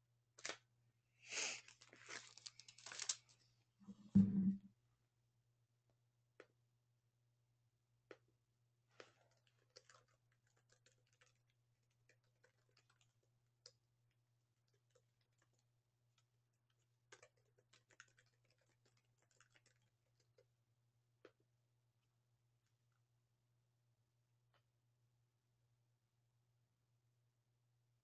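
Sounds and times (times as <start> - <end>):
low steady hum: 3.9 - 4.7.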